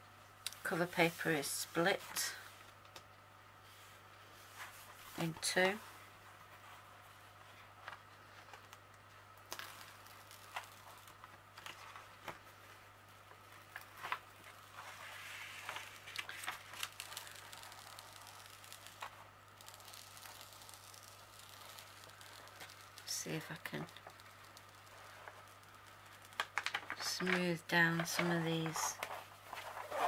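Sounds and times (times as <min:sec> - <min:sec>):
paper rustling and crinkling: 0:09.5 - 0:12.6, 0:13.7 - 0:30.0.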